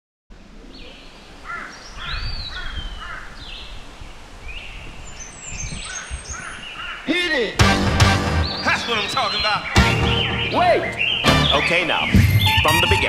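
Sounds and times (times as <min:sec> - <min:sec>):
birds chirping: 0:00.3 - 0:13.0
bird whistle rising and falling: 0:08.4 - 0:13.0.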